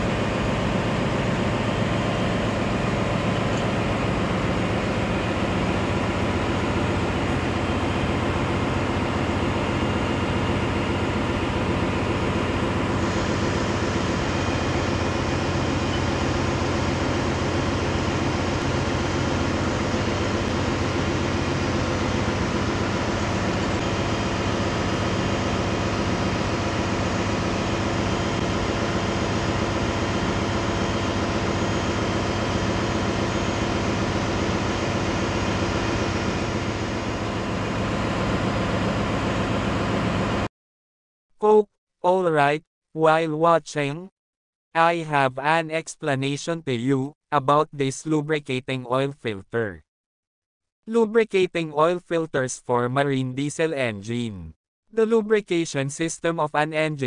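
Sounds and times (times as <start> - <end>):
ship engine room drone: 0.0 - 40.5.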